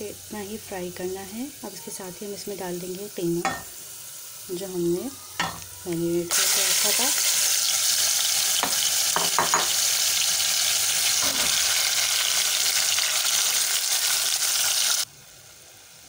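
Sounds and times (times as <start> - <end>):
minced meat sizzling in oil: 0.0 - 16.0
steel spoon knocking metal pot: 3.4 - 3.7.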